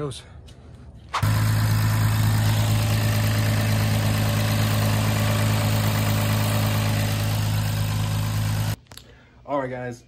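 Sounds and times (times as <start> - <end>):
car engine idling: 1.2 - 8.8.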